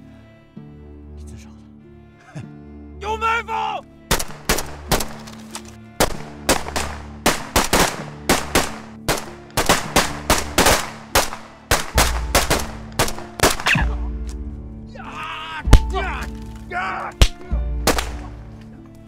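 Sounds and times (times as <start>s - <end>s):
rifle gunfire: 4.1s - 5.3s, 6.0s - 13.8s, 17.9s - 18.3s.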